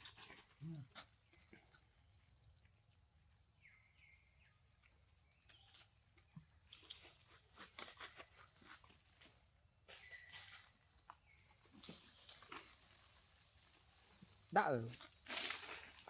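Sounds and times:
monkeys eating clicks and smacks: 0.0 - 9.0.

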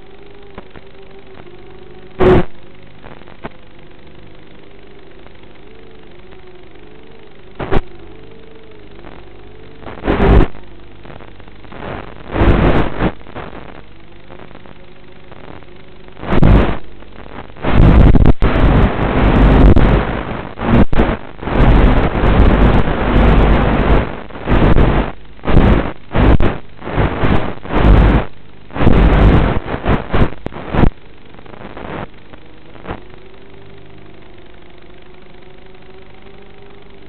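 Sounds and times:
faint steady hum: 0.0 - 37.0
rushing noise surges: 2.1 - 3.5, 9.8 - 14.7, 15.3 - 33.0.

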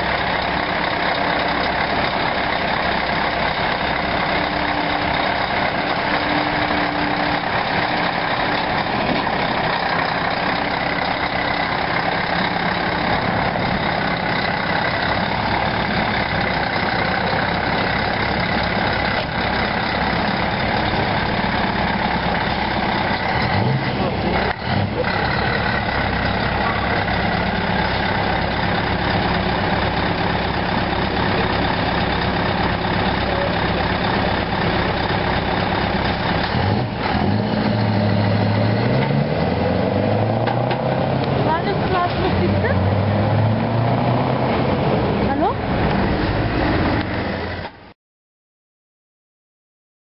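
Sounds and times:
diesel truck engine at low revs: 0.0 - 47.9.

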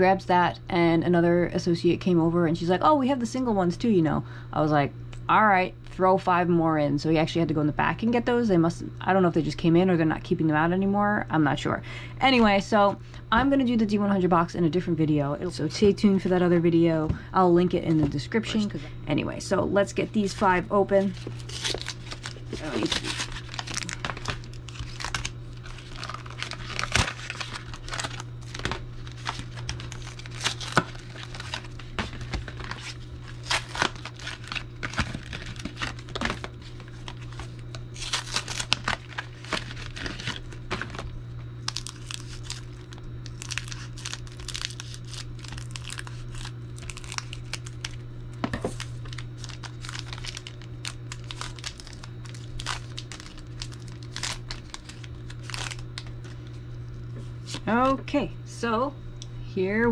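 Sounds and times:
steady low hum: 0.0 - 59.9
foil wrappers tearing and crinkling: 21.0 - 48.0, 48.6 - 56.4.

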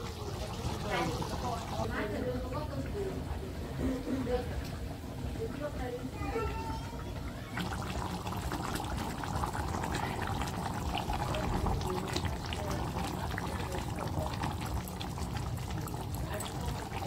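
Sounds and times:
curry simmering with small pops: 7.0 - 17.0
liquid pouring and splashing: 7.4 - 17.0.

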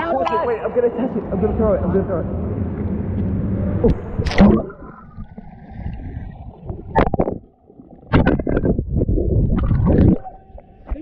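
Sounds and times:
underwater gurgling: 3.8 - 11.0
water splashing: 3.8 - 11.0.

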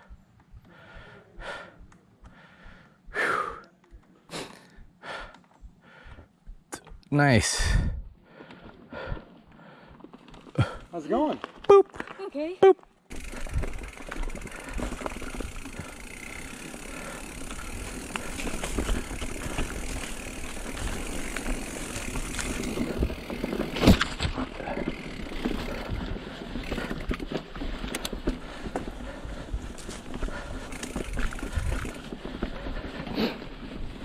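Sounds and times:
bike tyres rattling on dirt: 8.4 - 34.0.

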